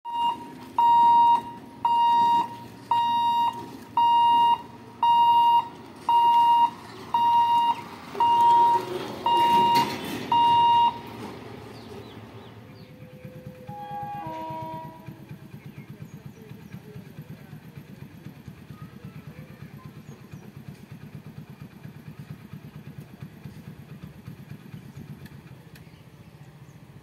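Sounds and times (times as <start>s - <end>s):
level crossing alarm beeping: 0.1s - 11.2s, 13.0s - 14.7s.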